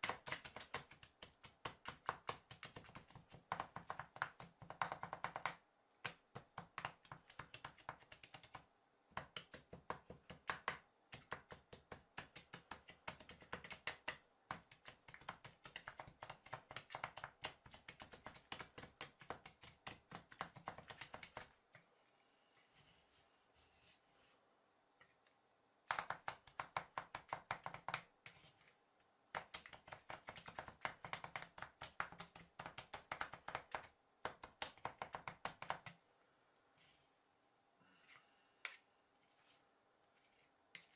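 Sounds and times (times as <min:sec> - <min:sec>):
faint scraping: 0:21.9 - 0:25.3.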